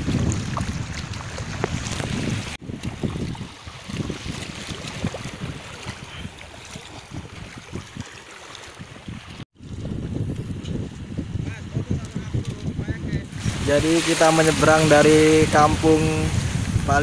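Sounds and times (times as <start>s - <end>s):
small waves washing: 0.0s - 9.5s, 13.3s - 17.0s
wind buffeting microphone: 0.0s - 17.0s.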